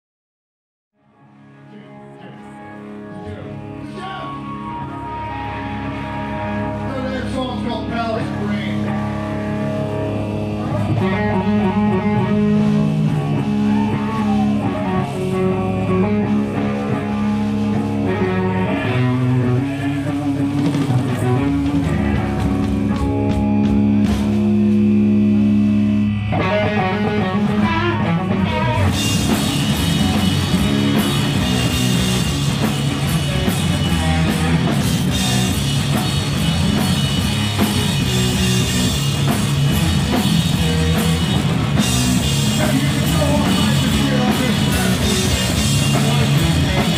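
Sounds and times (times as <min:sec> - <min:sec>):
distorted electric guitar and bass: 0:01.0 - 0:46.9
drums with cymbals: 0:19.8 - 0:25.2, 0:28.8 - 0:46.9.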